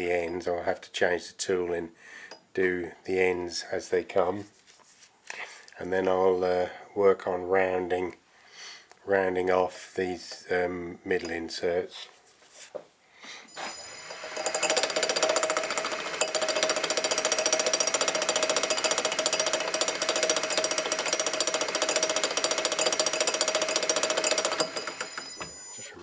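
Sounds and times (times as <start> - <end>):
metal lathe cutting metal bar: 13.8 - 25.2.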